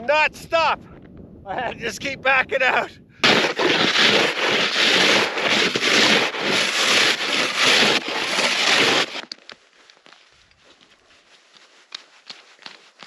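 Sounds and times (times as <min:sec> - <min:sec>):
snow shovel scraping snow: 0:03.2 - 0:09.2.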